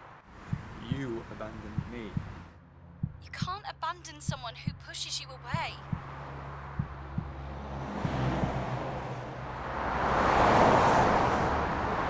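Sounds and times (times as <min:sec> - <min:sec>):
vehicle passing: 0:05.1 - 0:12.0.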